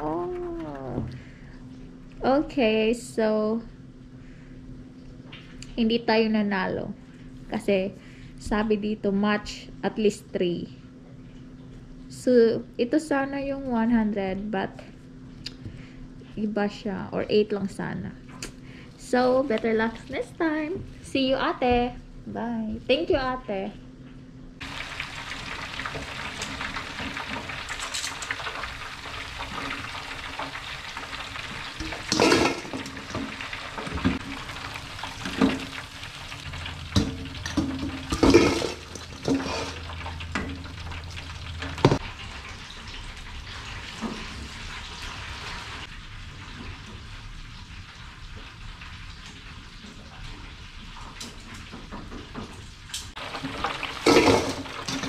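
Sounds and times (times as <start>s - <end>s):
deep-frying oil sizzle: 24.6s - 55.0s
metal tongs and basket clanks: 27.6s - 28.4s, 31.8s - 34.0s, 36.5s - 40.7s, 53.4s - 55.0s
loud metal clatter: 31.8s - 42.1s, 53.2s - 55.0s.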